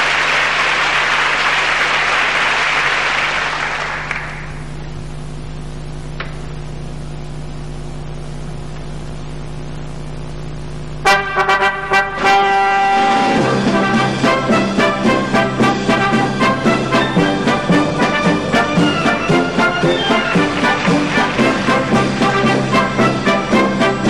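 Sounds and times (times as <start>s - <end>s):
audience applause: 0.0s - 4.7s, 16.4s - 24.0s
orchestral brass chords: 11.0s - 24.0s.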